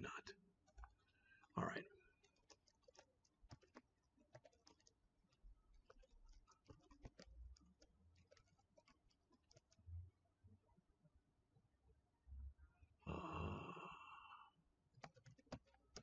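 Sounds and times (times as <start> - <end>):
keyboard typing: 1.7 - 9.9, 14.9 - 16.0.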